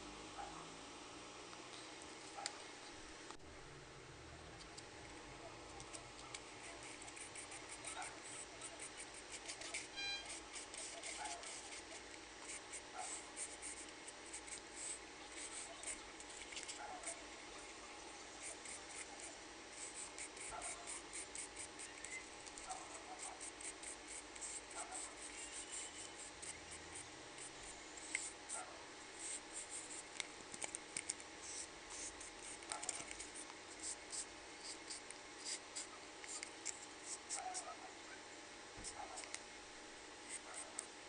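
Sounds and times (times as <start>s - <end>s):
paintbrush strokes on plastic: 5.7s - 17.2s, 18.4s - 28.4s.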